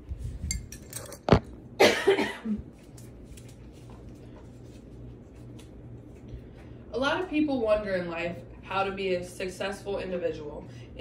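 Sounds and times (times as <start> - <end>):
faint low hum: 0.0 - 11.0
person coughing: 1.8 - 2.6.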